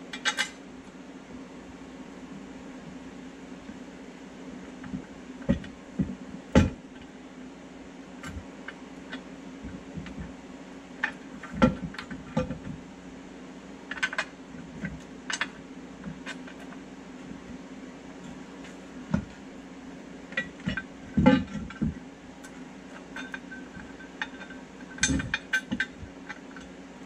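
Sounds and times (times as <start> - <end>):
steady low hum: 0.0 - 27.0
metal plate knocking and clinking: 23.2 - 26.0.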